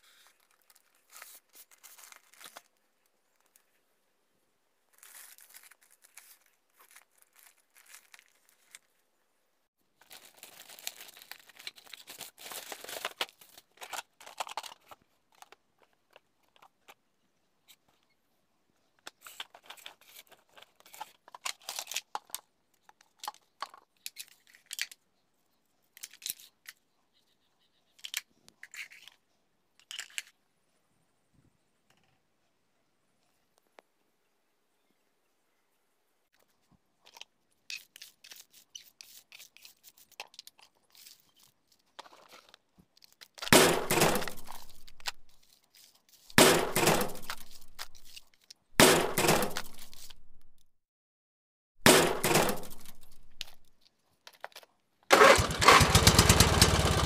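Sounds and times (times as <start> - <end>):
plastic bag crinkling and tearing: 0.1 - 2.8, 4.9 - 8.9, 10.0 - 16.7, 19.3 - 22.5, 39.7 - 48.4.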